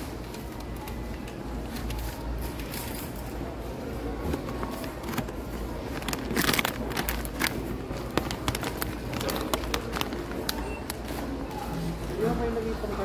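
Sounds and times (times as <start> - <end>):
plastic pouch crinkling: 4.7 - 11.0.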